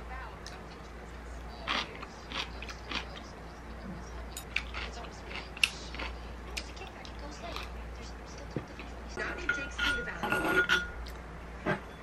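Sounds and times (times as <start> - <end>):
close-up chewing: 1.4 - 3.4, 4.4 - 7.8
metal spoon scraping ceramic bowl: 9.2 - 11.0.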